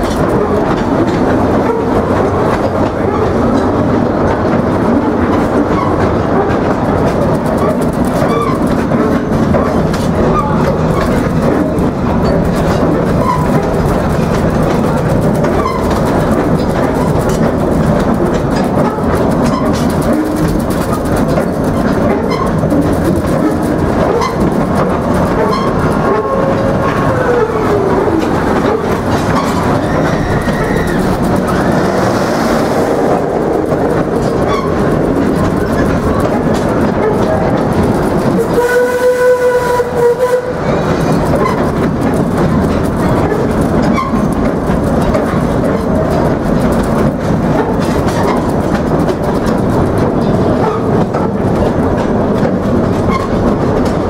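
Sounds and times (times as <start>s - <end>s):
steam train rumbling: 0.0s - 54.0s
wheels clacking on rails: 0.0s - 54.0s
steam whistle: 38.4s - 40.7s.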